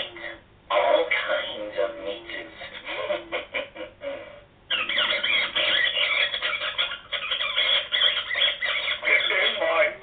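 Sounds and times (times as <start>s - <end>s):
recorded voice from speaker: 0.0s - 10.0s
rat squeals from small speaker: 4.7s - 9.6s.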